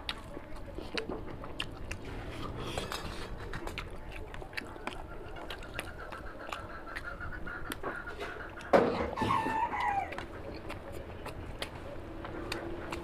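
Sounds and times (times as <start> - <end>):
chewing with smacks and clicks: 0.0 - 13.0.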